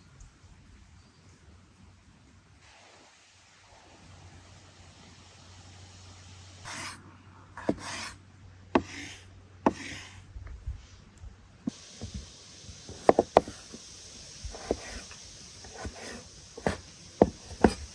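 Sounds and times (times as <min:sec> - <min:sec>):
knife slicing food: 0:08.8 - 0:10.2, 0:12.9 - 0:13.8
knife knocking on wooden board: 0:12.9 - 0:13.6.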